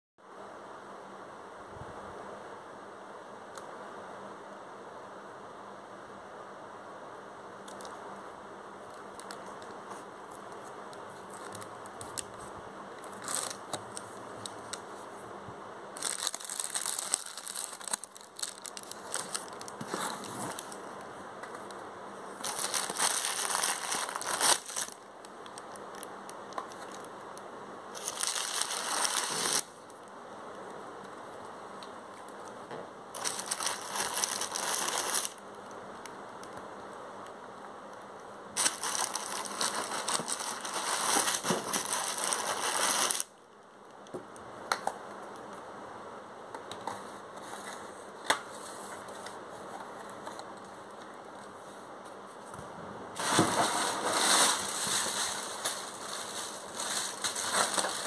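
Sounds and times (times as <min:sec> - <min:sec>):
plastic packing film crinkling: 0:10.3 - 0:12.4, 0:13.0 - 0:14.9, 0:16.0 - 0:21.0, 0:22.4 - 0:29.7, 0:33.2 - 0:35.4, 0:38.6 - 0:43.4, 0:53.2 - 0:58.0.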